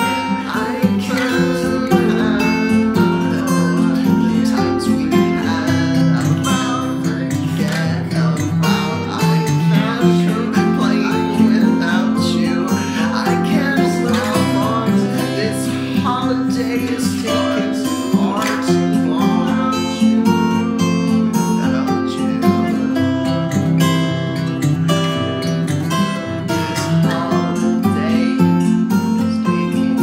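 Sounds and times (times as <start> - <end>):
strummed acoustic guitar: 0.0 - 30.0
sustained low notes: 0.6 - 8.2.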